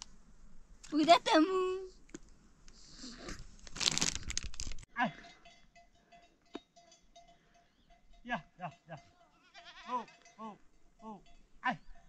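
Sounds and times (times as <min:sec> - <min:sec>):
foil snack packet crinkling: 0:03.5 - 0:04.9.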